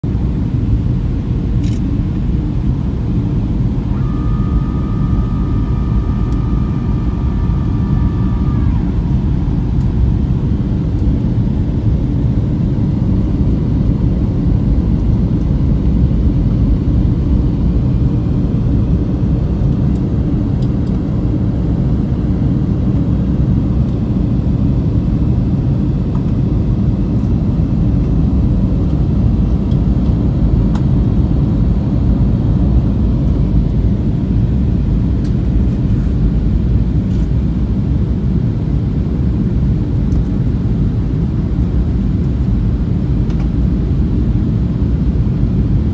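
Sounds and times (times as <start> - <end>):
airplane engines and rushing air: 0.0 - 45.9
faint high tone: 3.8 - 9.6.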